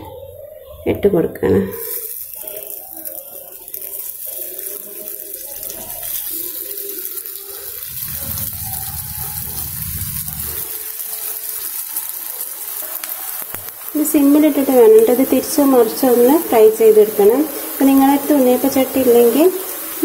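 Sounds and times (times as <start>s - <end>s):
hot oil sizzling: 1.7s - 20.0s
low rumble: 7.8s - 10.7s.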